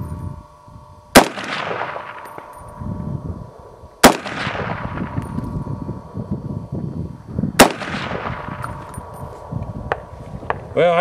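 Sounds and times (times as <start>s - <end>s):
rifle shots with echo: 1.1s - 2.5s, 4.0s - 5.2s, 7.6s - 8.7s.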